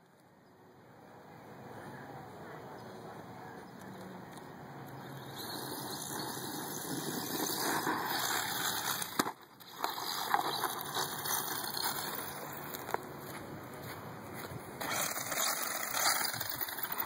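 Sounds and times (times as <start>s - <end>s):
rc truck motor and tyres rushing: 3.8s - 13.1s, 14.7s - 17.0s.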